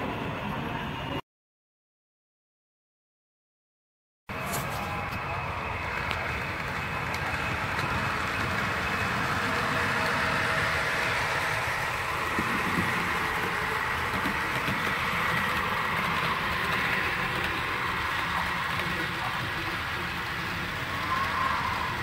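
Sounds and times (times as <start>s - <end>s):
model train motor whirring: 4.7s - 22.0s.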